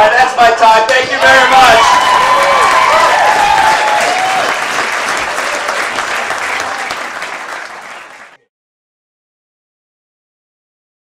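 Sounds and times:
audience applauding: 0:01.2 - 0:08.4.

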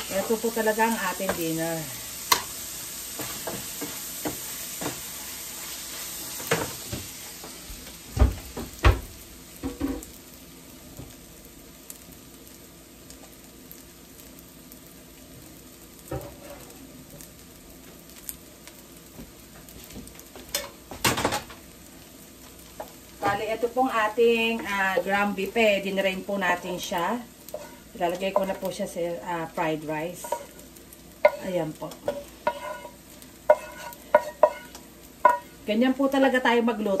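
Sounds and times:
rice sizzling in a pan: 0:00.0 - 0:37.0
metal spatula scraping pan: 0:27.5 - 0:28.6, 0:31.2 - 0:35.5.

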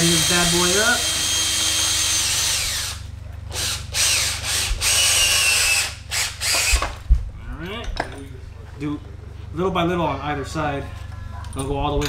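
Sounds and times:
cordless power driver spinning: 0:00.0 - 0:03.0, 0:03.6 - 0:07.1.

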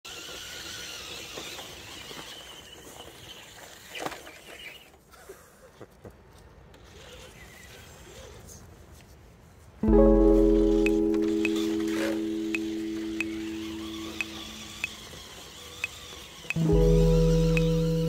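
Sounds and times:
thin high whine: 0:10.1 - 0:18.0.

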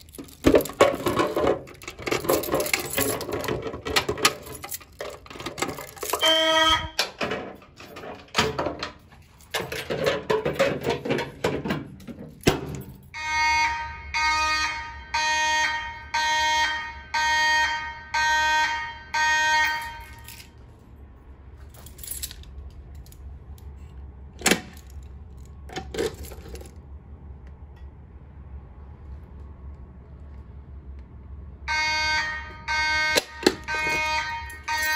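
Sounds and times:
clicks and rustling: 0:00.0 - 0:06.2
fire alarm horn pulses: 0:06.1 - 0:07.0, 0:13.1 - 0:20.4, 0:31.7 - 0:34.9.

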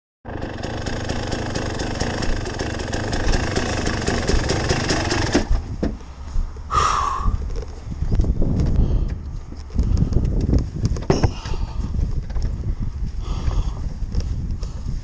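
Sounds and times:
dirt bike engine idling: 0:00.3 - 0:05.6.

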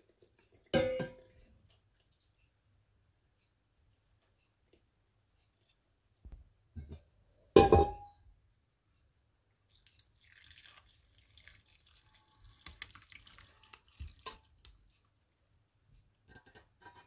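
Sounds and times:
liquid pouring and splashing: 0:09.7 - 0:15.2.

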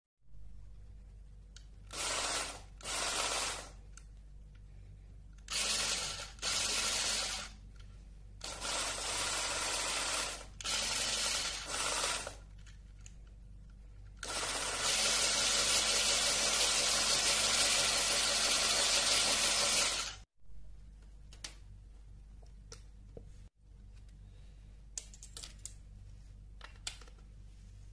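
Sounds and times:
small electric motor running: 0:01.9 - 0:03.8, 0:05.5 - 0:07.6, 0:08.4 - 0:12.4, 0:14.2 - 0:20.2.

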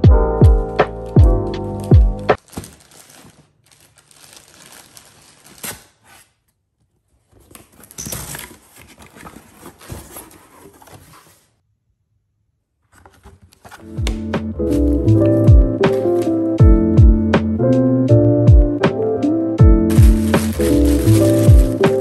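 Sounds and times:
knife slitting packing tape: 0:05.4 - 0:06.5
cardboard flaps pulled open: 0:19.9 - 0:22.0.

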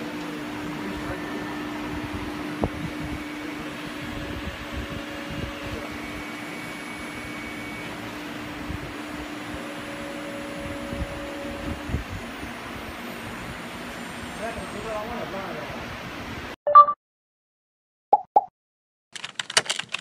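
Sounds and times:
high motor whines: 0:00.0 - 0:15.0
cnc router whirring hum: 0:00.0 - 0:16.0.

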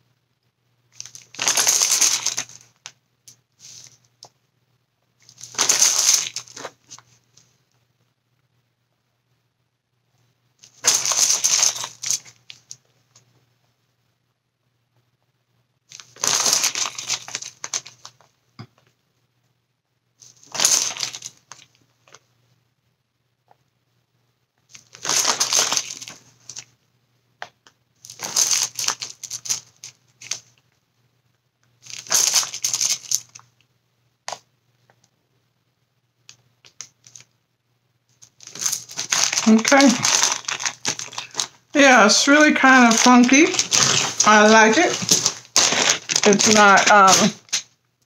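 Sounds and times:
crinkly material rustling: 0:00.9 - 0:04.3, 0:05.2 - 0:07.6, 0:10.6 - 0:13.3, 0:15.9 - 0:18.3, 0:20.2 - 0:22.3, 0:24.6 - 0:26.8, 0:28.0 - 0:30.6, 0:31.8 - 0:33.5, 0:36.3 - 0:37.4, 0:38.1 - 0:47.7.

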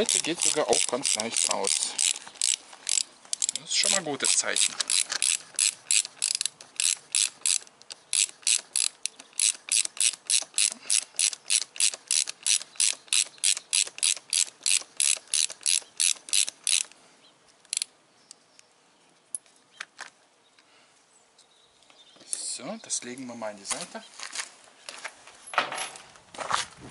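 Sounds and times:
ratchet wrench clicking: 0:00.0 - 0:16.9.

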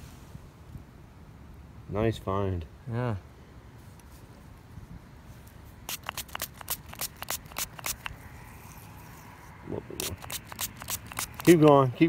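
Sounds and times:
scratchy clicks: 0:05.9 - 0:08.2, 0:10.0 - 0:11.8
thumb rubbing soil off coin: 0:05.9 - 0:11.9.

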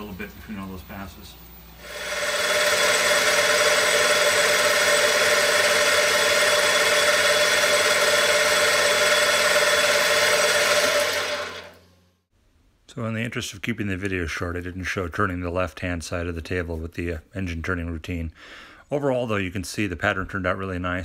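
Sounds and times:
metal lathe turning: 0:01.8 - 0:11.9.

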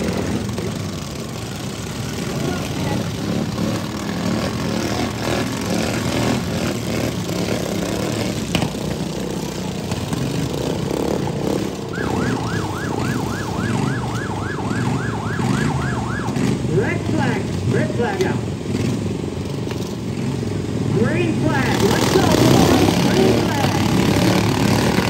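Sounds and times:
lawn mower engines revving: 0:00.0 - 0:25.0
siren yelping: 0:11.8 - 0:18.0.

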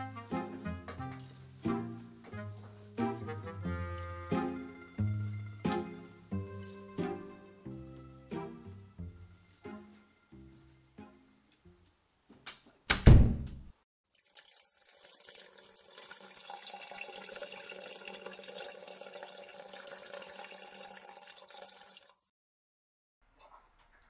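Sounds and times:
door thudding shut: 0:12.9 - 0:13.7
running water: 0:14.1 - 0:22.3.

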